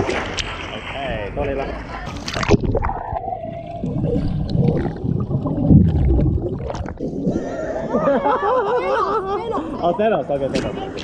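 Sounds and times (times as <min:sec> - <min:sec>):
water splash: 0:00.0 - 0:01.1, 0:02.0 - 0:07.5
swimmers thrashing underwater: 0:00.0 - 0:08.2
bubbles gurgling: 0:02.1 - 0:08.0.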